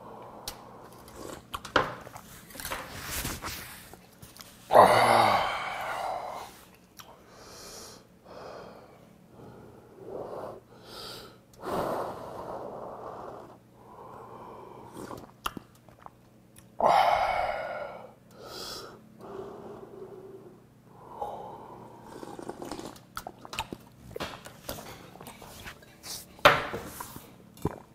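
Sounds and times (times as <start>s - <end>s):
person breathing: 4.7s - 15.2s, 16.8s - 22.4s
person slurping broth: 14.8s - 15.4s, 21.9s - 23.7s, 26.9s - 27.9s.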